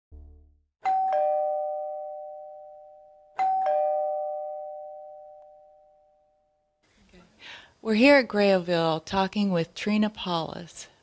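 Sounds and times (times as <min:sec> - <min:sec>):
two-tone doorbell chime: 0:00.8 - 0:06.6.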